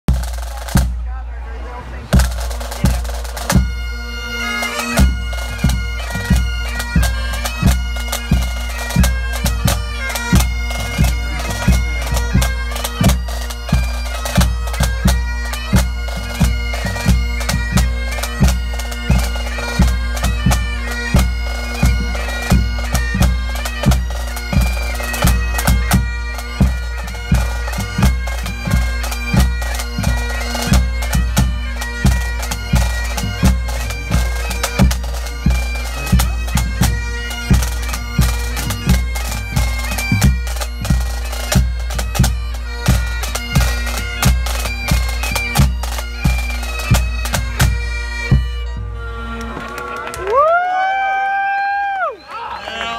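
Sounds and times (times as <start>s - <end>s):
bass drum beat: 0.1s - 1.2s
snare drums: 0.1s - 1.2s, 2.1s - 3.7s, 30.7s - 37.6s
bagpipes with drones: 0.1s - 52.9s.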